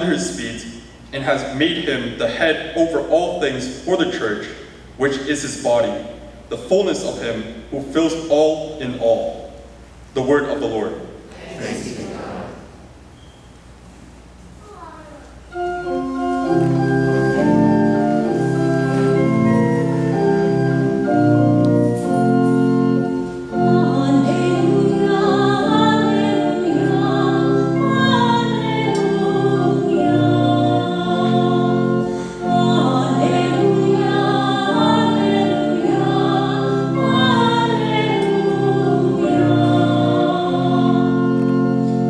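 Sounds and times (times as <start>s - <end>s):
organ playing sustained chords: 0.0s - 13.0s, 15.4s - 42.0s
people singing: 11.3s - 12.7s, 23.5s - 41.7s.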